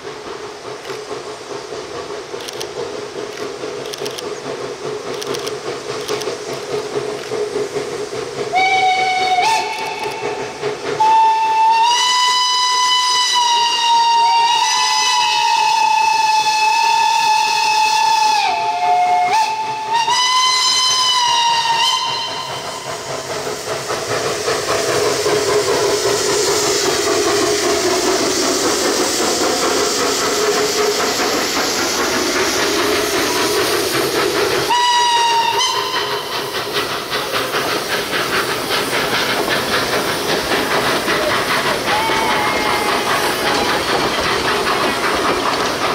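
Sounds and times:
hiss of escaping steam: 0.0 - 45.9
steam locomotive whistle: 8.5 - 23.1, 34.6 - 36.8, 41.2 - 43.7.

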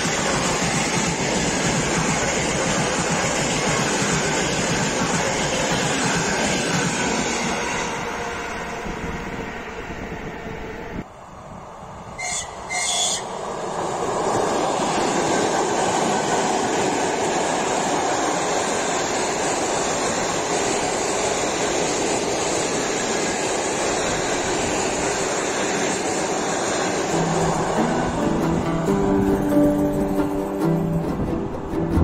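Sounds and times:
train passing with wheel and rail noise: 0.0 - 32.0
high-pitched train horn blasts: 12.2 - 13.3.

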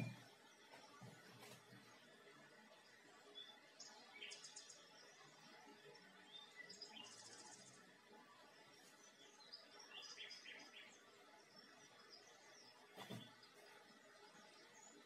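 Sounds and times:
birds chirping and trilling: 6.2 - 7.8, 8.9 - 15.0.

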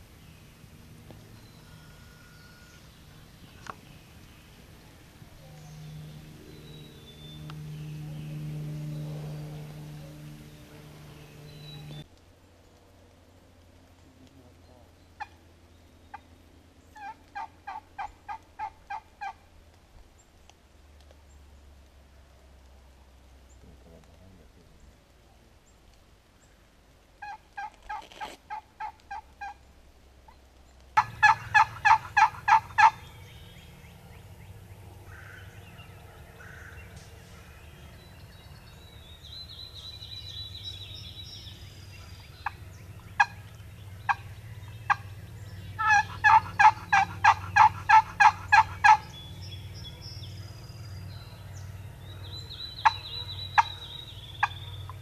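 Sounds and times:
turkey yelping: 17.0 - 19.4, 27.2 - 29.6, 31.0 - 33.1, 42.4 - 44.3, 44.9 - 45.1, 45.8 - 49.2, 52.4 - 55.0.

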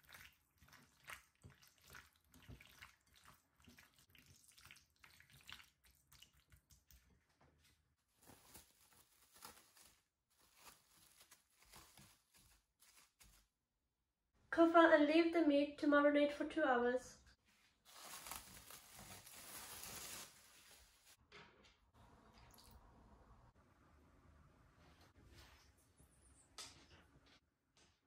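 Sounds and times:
wet squelching of hands mixing: 0.0 - 13.4
cling film rustling: 8.1 - 13.5, 17.8 - 21.2.

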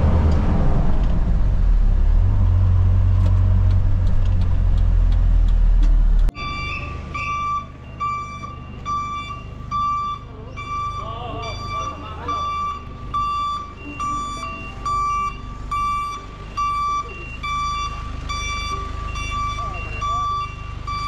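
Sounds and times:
truck engine droning: 0.0 - 21.0
high reversing alarm beeps: 6.4 - 21.0.

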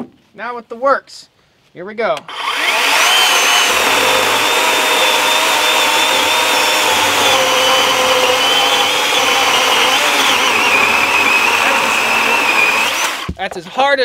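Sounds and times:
electric chainsaw motor whine: 2.3 - 13.4.

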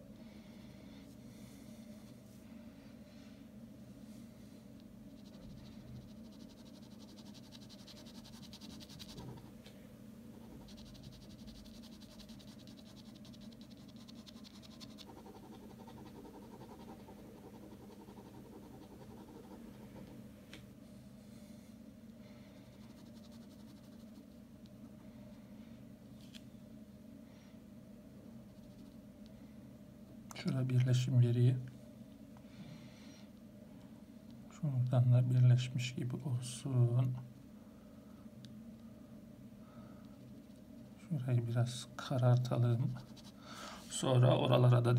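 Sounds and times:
steady low hum: 0.0 - 44.9
pen scratching on paper: 5.2 - 9.5, 10.3 - 20.1.

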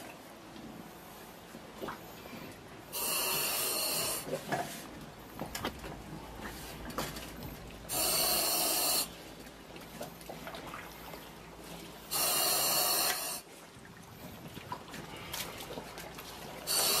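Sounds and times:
faint water sloshing: 0.0 - 12.2, 12.9 - 17.0
hissing respirator breaths: 2.9 - 4.3, 7.9 - 9.1, 12.1 - 13.4, 16.7 - 17.0.

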